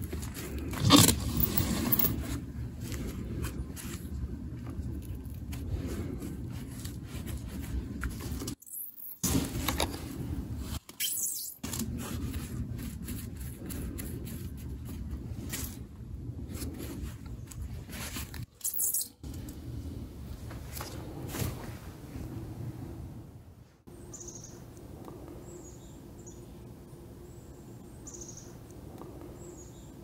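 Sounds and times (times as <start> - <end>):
steady low rumble: 0.0 - 8.6, 9.4 - 10.8, 11.6 - 18.5, 19.2 - 30.0
scraping and rustling handling noise: 0.0 - 11.0, 11.6 - 19.4.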